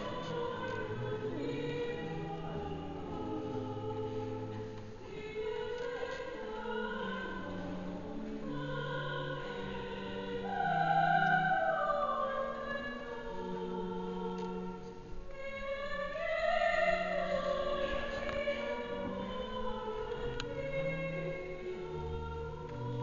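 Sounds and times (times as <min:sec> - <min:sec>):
group singing in harmony: 0:00.0 - 0:23.0.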